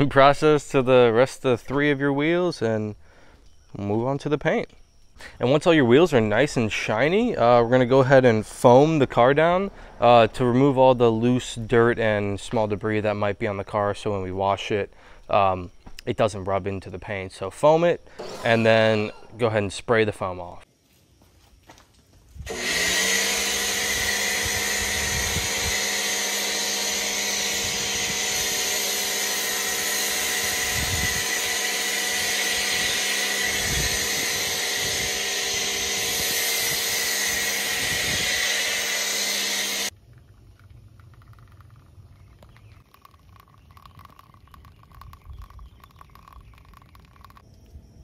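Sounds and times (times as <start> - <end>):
pressure washer motor hum: 18.1 - 19.4, 22.5 - 39.9
water spray hiss: 23.4 - 39.9.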